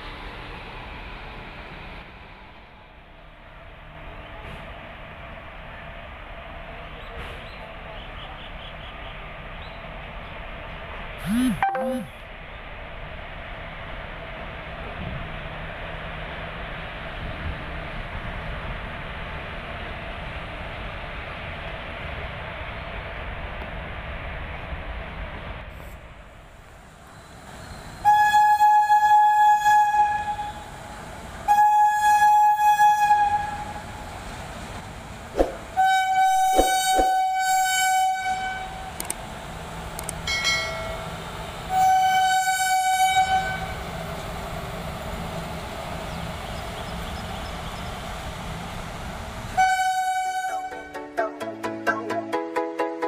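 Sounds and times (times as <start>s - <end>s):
freight train rumbling past: 0.0s - 11.2s, 12.2s - 51.6s
electronic music: 11.2s - 12.2s
locomotive horn blasts: 35.8s - 38.8s, 41.7s - 43.8s, 49.6s - 51.0s.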